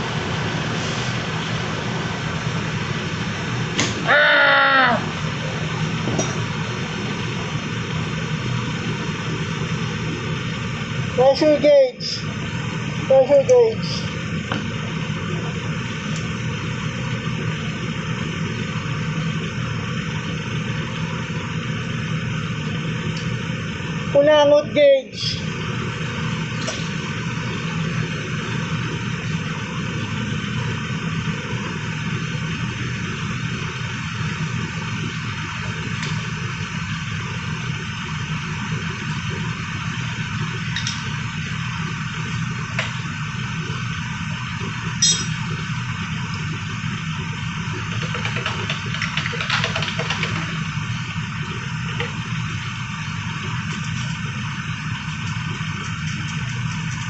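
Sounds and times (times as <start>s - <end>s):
rush of air: 0.0s - 3.8s
ventilation machinery hum: 0.0s - 57.0s.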